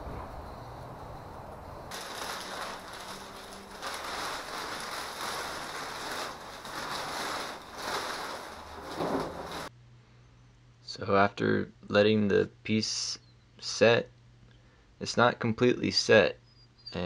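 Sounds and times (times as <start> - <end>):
plastic bags rustling: 1.9 - 9.7.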